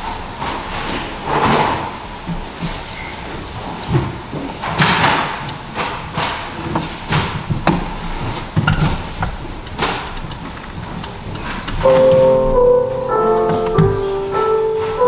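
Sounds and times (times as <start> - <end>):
rustling and shuffling: 0.4 - 15.0.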